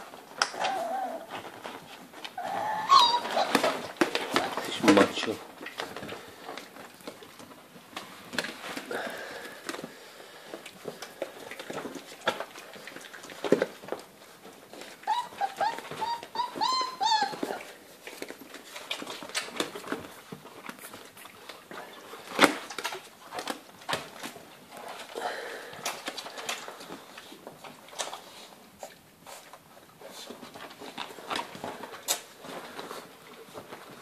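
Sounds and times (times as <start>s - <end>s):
puppy whining and yelping: 0.4s - 4.6s, 14.7s - 17.9s.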